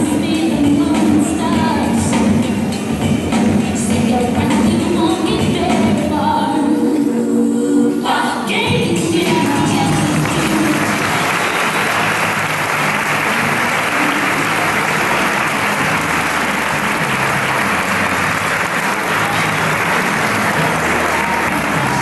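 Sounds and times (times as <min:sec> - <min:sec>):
audience applauding: 0:09.4 - 0:22.0.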